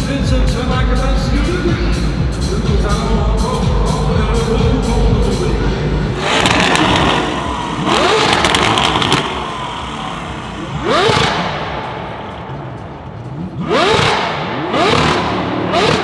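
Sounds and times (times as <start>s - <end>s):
car engine revving in blips: 5.6s - 16.0s
exhaust crackles and pops: 6.2s - 16.0s.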